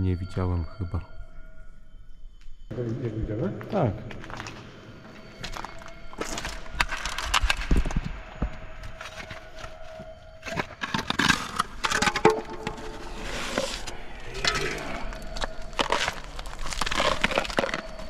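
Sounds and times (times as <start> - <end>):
concrete debris scraping: 9.0 - 18.0.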